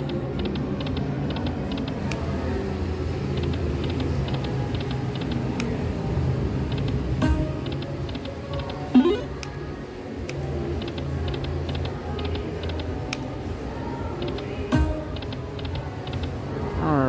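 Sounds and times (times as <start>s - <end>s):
electronic game tones: 8.9s - 9.4s.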